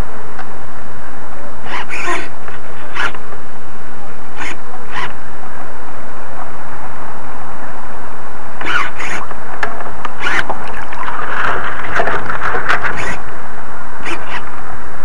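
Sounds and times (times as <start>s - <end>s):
water rushing and splashing: 10.4s - 13.3s.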